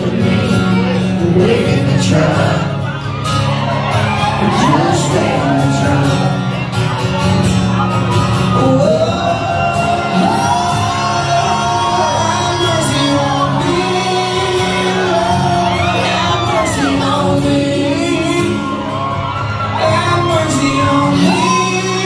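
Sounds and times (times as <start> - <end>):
strummed acoustic guitars: 0.0 - 22.0.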